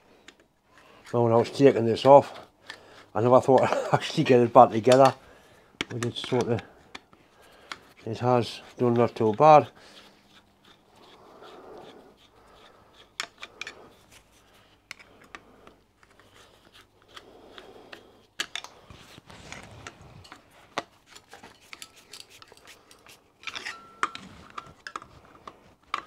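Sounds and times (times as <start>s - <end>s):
screwdriver metallic clicks and scrapes: 5.8s - 8.0s, 10.2s - 26.0s.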